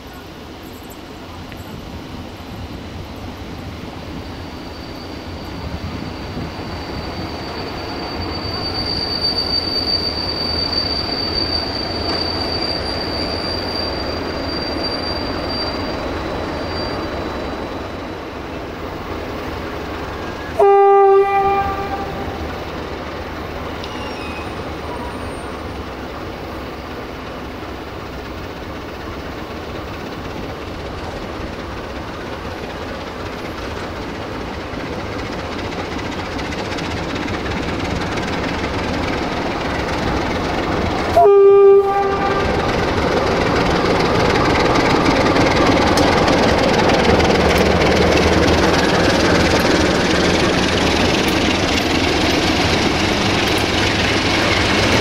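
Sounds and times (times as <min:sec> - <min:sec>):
locomotive engine rumble: 0:00.0 - 0:55.0
train wheel noise: 0:00.0 - 0:55.0
high brake squeal: 0:03.2 - 0:18.4, 0:20.1 - 0:22.7, 0:23.6 - 0:27.0, 0:35.3 - 0:55.0
train horn blast: 0:20.5 - 0:22.5, 0:41.1 - 0:42.6.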